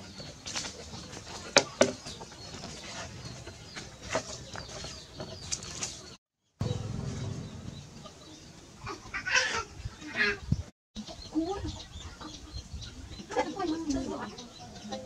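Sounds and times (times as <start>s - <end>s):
faint outdoor background: 0.0s - 15.0s.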